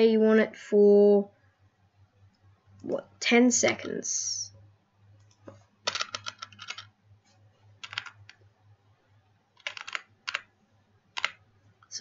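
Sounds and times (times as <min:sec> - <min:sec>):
faint low hum: 0:00.0 - 0:12.0
typing on computer keyboard: 0:05.2 - 0:06.9, 0:07.8 - 0:08.4, 0:09.6 - 0:10.5, 0:11.2 - 0:11.4.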